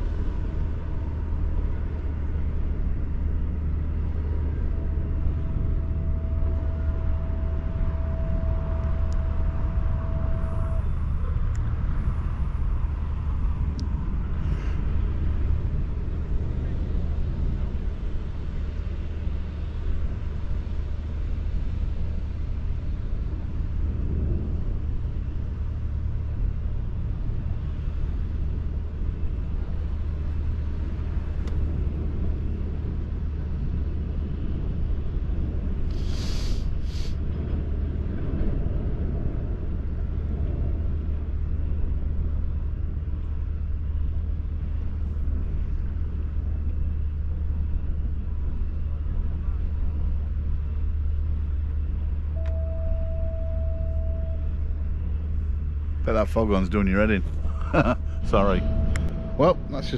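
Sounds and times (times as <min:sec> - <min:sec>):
haze of noise: 0:00.0 - 0:59.9
low machinery rumble: 0:00.0 - 0:59.9
short sharp hisses: 0:35.9 - 0:37.2.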